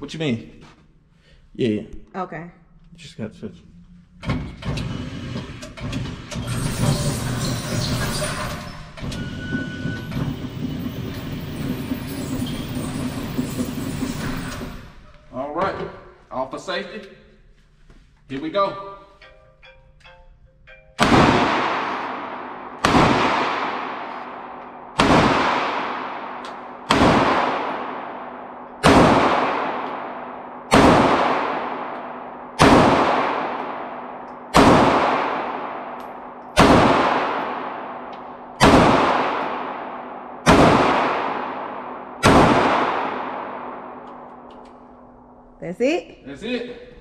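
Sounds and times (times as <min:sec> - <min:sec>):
pistol shots echoing: 0:21.0 - 0:45.0.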